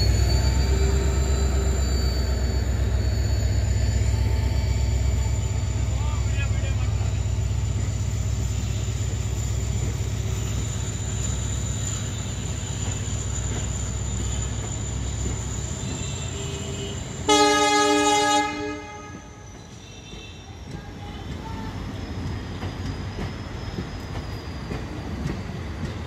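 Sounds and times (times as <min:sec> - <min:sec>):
train coaches rumbling on rails: 0:00.0 - 0:26.0
locomotive horn blast: 0:16.0 - 0:19.4.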